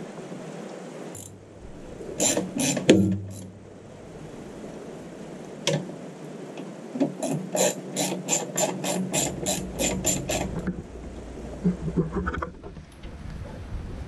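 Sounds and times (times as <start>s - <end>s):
ratchet spanner clicking: 1.2s - 1.4s, 2.2s - 3.5s, 7.2s - 10.6s.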